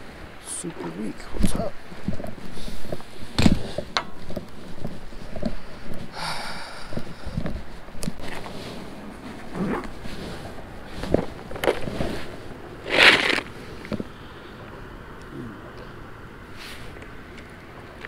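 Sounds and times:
fabric rustling on microphone: 1.4 - 6.2, 6.8 - 14.1.

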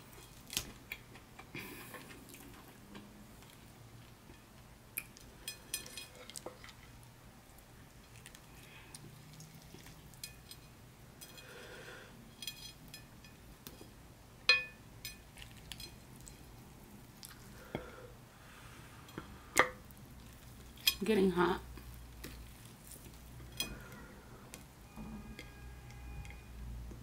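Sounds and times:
wet squishes of food: 6.2 - 10.7, 15.3 - 17.7, 19.4 - 21.0, 21.6 - 23.6
clink on ceramic plate: 14.5 - 15.2.

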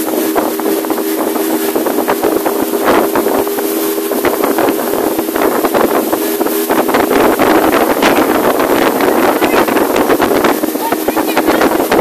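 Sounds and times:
motorboat motor running: 0.0 - 12.0
wind buffeting microphone: 0.0 - 12.0.

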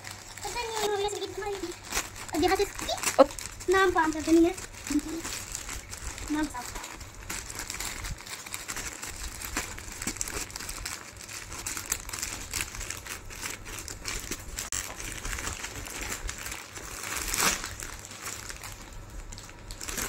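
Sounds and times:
plastic packaging crinkling: 0.0 - 20.0.

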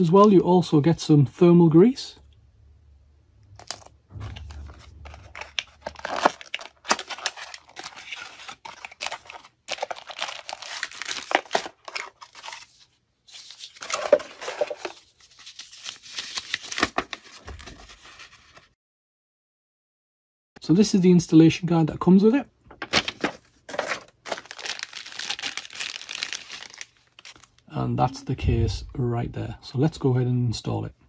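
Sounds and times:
cardboard and paper rustling: 3.6 - 18.7, 22.7 - 27.6.

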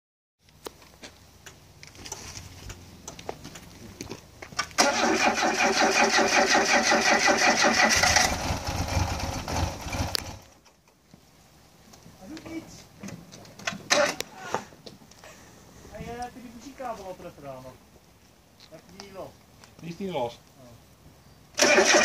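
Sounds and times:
car engine rumbling: 0.5 - 14.3
car starter cranking: 4.6 - 10.4, 13.6 - 14.2, 21.6 - 22.0.

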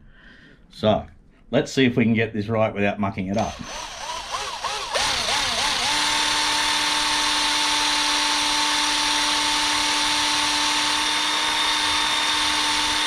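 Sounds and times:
power drill whining: 3.4 - 13.0.

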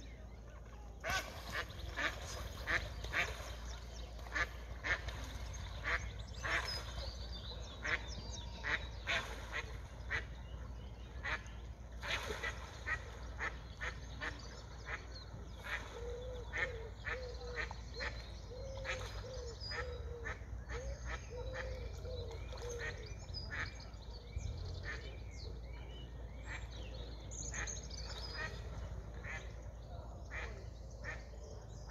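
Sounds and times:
ducks quacking: 1.0 - 7.0, 7.8 - 10.4, 28.4 - 29.6, 30.2 - 31.3.

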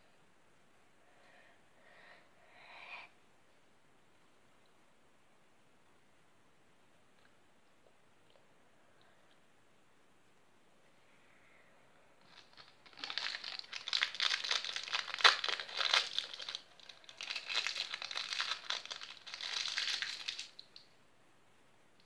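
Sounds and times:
crinkly plastic crackling: 12.2 - 20.9.

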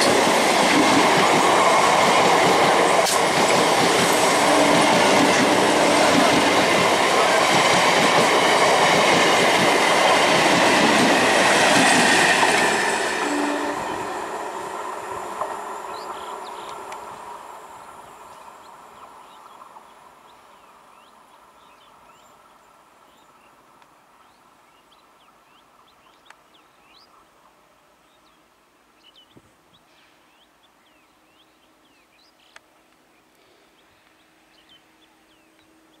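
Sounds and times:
electric train rumble: 0.0 - 21.8
small birds chirping: 15.9 - 17.0, 24.2 - 27.4, 28.0 - 36.0.

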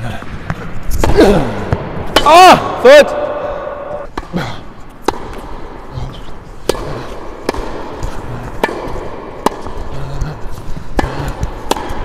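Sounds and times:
tennis ball hit with rackets: 4.0 - 5.9, 6.6 - 12.0
tennis ball bouncing on hard court: 4.9 - 5.8, 6.6 - 12.0.

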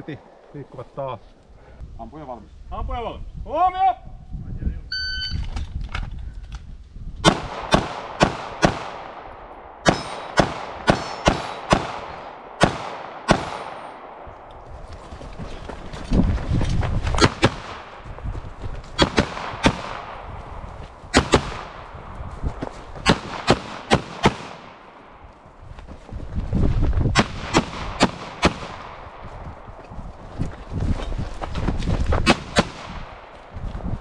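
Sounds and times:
pistol shots: 7.2 - 14.2, 19.0 - 20.3, 21.1 - 21.8, 23.0 - 24.9, 27.2 - 29.0.

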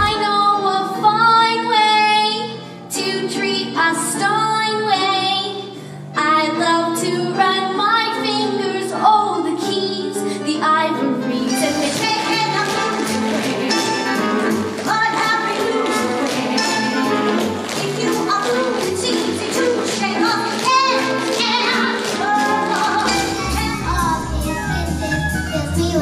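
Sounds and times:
lively instrumental music: 8.7 - 26.0
instrumental accompaniment: 10.5 - 26.0
girl singing: 17.7 - 26.0.

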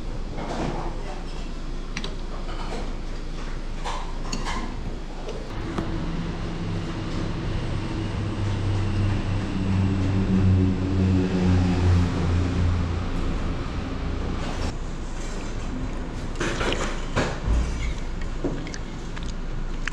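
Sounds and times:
vehicle engine hum: 5.4 - 19.9.

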